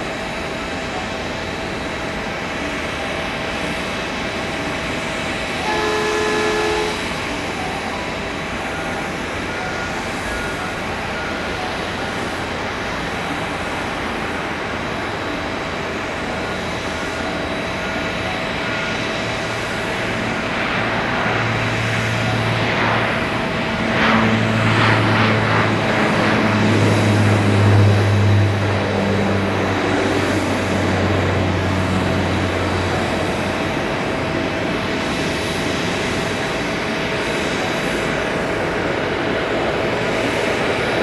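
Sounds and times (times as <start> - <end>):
broad rush of noise: 0.0 - 41.0
jet engine whine: 0.0 - 41.0
horn-like tone: 5.6 - 7.2.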